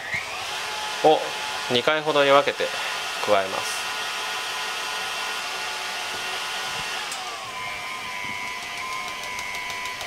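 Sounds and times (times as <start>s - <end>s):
stand mixer motor whining: 0.0s - 10.0s
whisk beating in steel bowl: 8.3s - 10.0s.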